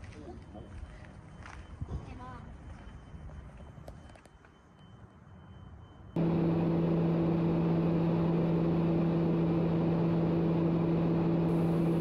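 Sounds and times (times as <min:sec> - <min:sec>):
turboprop engine drone: 0:06.2 - 0:12.0.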